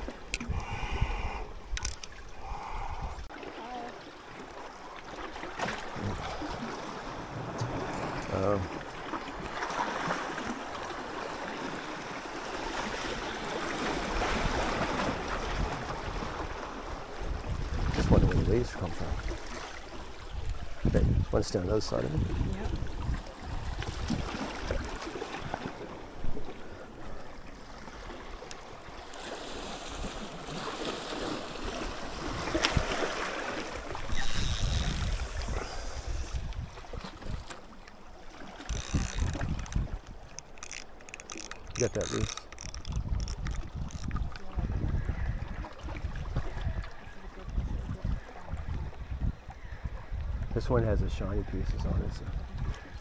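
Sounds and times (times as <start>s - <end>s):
wind buffeting microphone: 0.0s - 3.3s, 14.1s - 26.5s, 33.8s - 37.5s, 38.7s - 53.0s
seawater washing and lapping: 0.0s - 49.7s.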